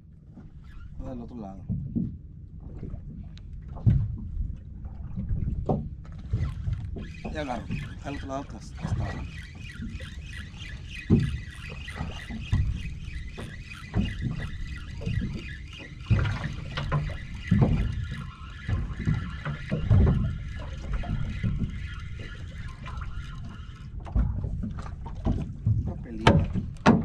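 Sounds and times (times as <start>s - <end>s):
wind rumble on microphone: 0.0s - 27.0s
water slapping against boat hull: 0.2s - 27.0s
fishing reel cranking: 6.1s - 25.0s.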